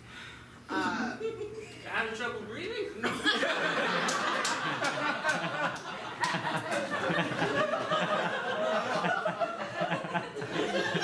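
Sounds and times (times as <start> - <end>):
audience laughing: 3.2 - 11.0.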